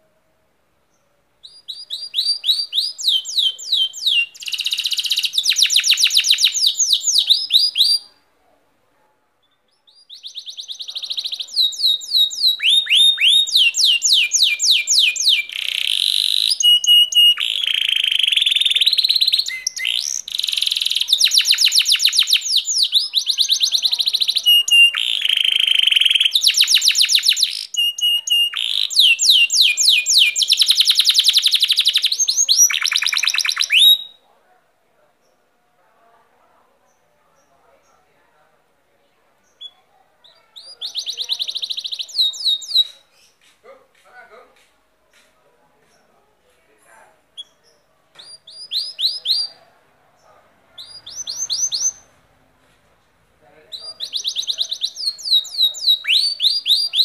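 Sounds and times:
canary singing: 1.4s - 8.2s, 9.7s - 34.2s, 39.4s - 43.5s, 47.3s - 52.3s, 53.6s - 57.0s.

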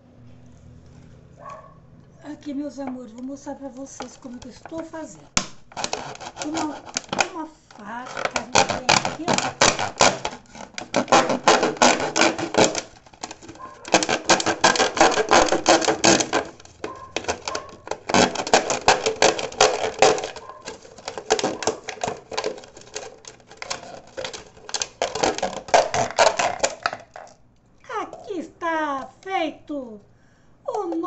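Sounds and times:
knife sawing through plastic bottle: 5.7s - 27.1s.

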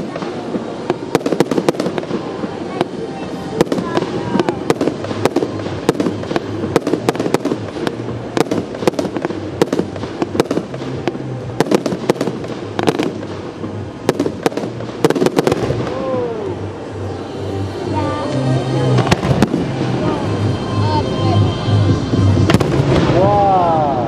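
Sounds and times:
fireworks bursting: 0.0s - 24.0s.

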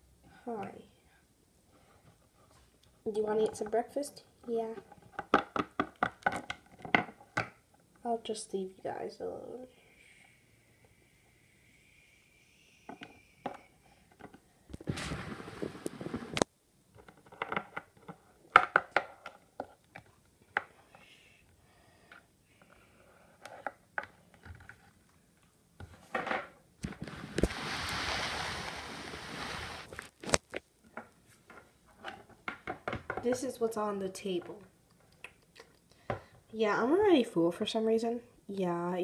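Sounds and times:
plastic toys clicking on wood: 4.8s - 7.6s
rustling handling noise: 26.8s - 32.4s.

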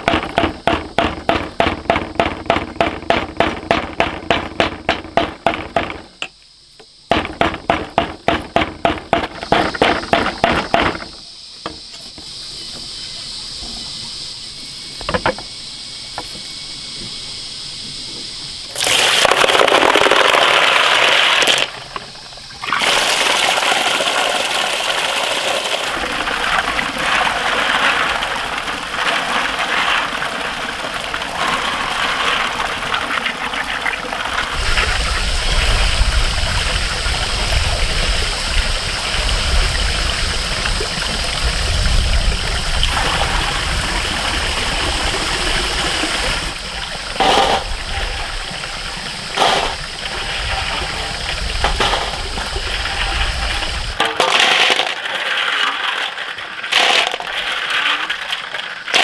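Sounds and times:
tap water gushing into metal basin: 18.7s - 59.0s.

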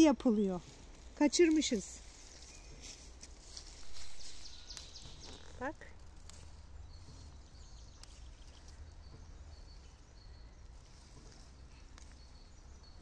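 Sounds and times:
low steady rumble: 3.5s - 11.5s.

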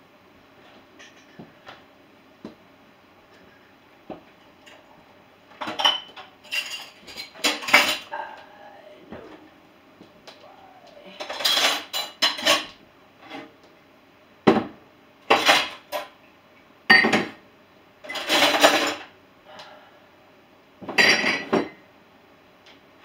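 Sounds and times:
dishes and cutlery clattering: 5.6s - 8.1s, 11.2s - 12.8s, 15.3s - 16.2s, 18.1s - 19.1s, 20.9s - 21.8s.

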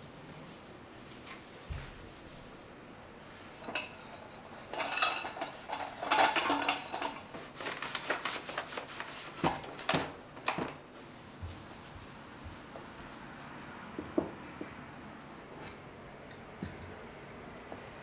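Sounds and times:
ceramic dishes clinking: 4.7s - 5.5s, 16.3s - 17.0s.

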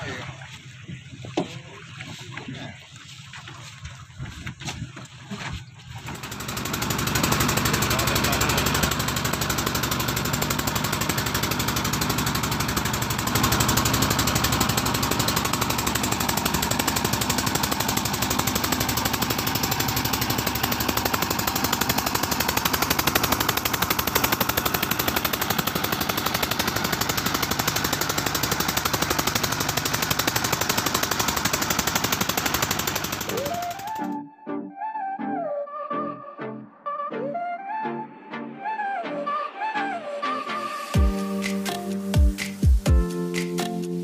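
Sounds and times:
wind: 0.0s - 7.0s
boat engine running: 0.0s - 34.2s, 40.9s - 44.0s.

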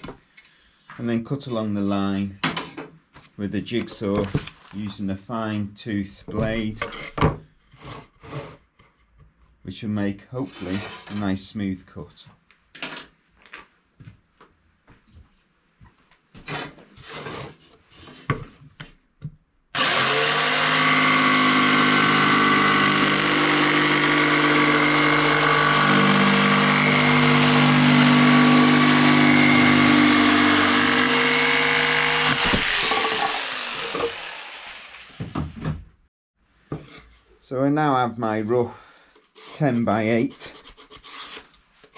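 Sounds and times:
jigsaw cutting plywood: 19.8s - 35.8s.

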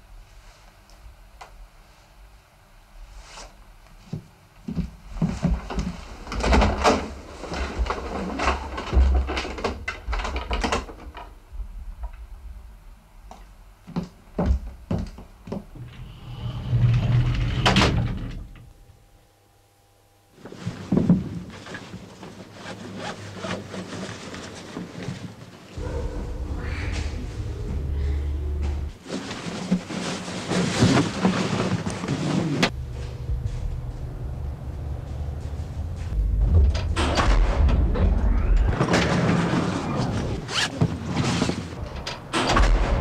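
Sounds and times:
rustling: 20.4s - 37.5s
rushing noise: 25.8s - 29.0s, 32.8s - 40.5s
knocks and thuds: 36.2s - 39.2s.

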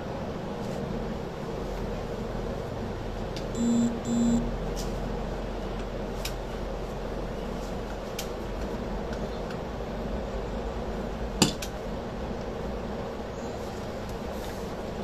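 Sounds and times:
short electronic beeps: 3.6s - 4.6s
low hum: 3.6s - 4.9s.

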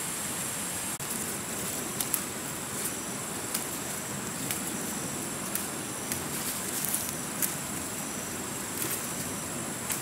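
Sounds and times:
leaves rustling: 0.0s - 10.0s
steady hiss: 0.0s - 10.0s
plant stems snapping: 1.7s - 2.4s, 3.4s - 7.8s.

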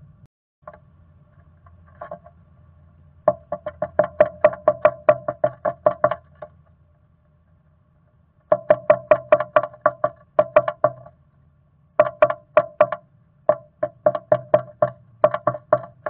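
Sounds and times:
bird pecking wood: 3.3s - 6.6s, 12.0s - 16.0s.

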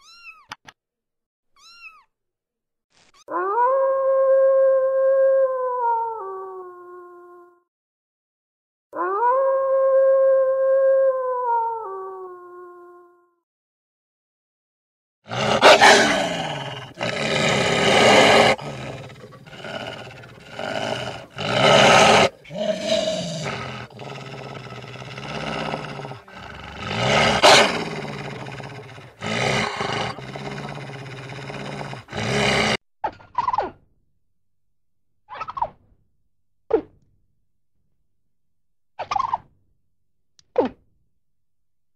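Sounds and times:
sharp animal calls: 15.3s - 32.8s
wolf growling and snarling: 15.3s - 32.8s.

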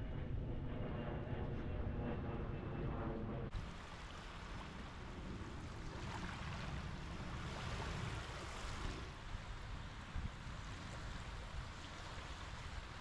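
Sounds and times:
airliner drone: 0.0s - 13.0s
small waves washing onto beach: 3.6s - 13.0s.

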